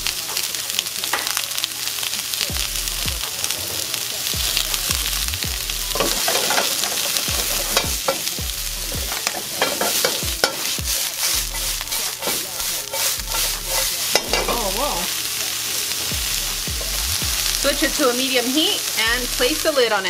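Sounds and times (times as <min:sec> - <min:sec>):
onions sizzling in hot oil: 0:00.0 - 0:20.0
wok clattering and scraping: 0:05.9 - 0:19.1.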